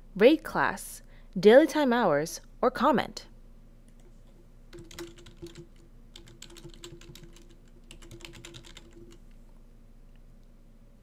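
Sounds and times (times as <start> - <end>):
typing on computer keyboard: 4.7 - 9.3.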